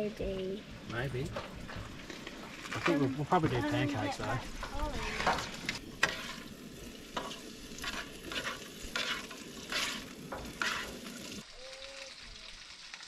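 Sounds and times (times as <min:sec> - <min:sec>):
potatoes sizzling in oil: 0:00.0 - 0:13.0
spatula scraping pan: 0:01.3 - 0:11.4.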